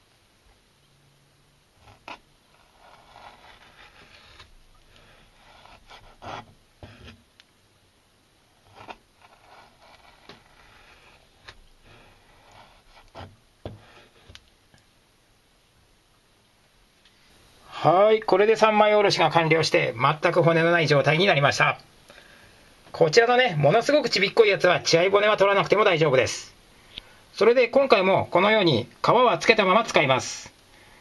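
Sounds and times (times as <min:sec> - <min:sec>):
knife scraping through fish: 0:01.9 - 0:07.2, 0:08.7 - 0:13.3.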